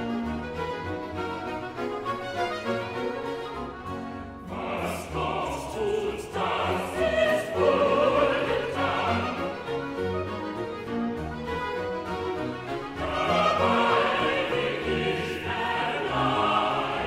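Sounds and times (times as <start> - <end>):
orchestra playing: 0.0 - 17.0
choir singing: 4.4 - 10.6, 12.3 - 17.0.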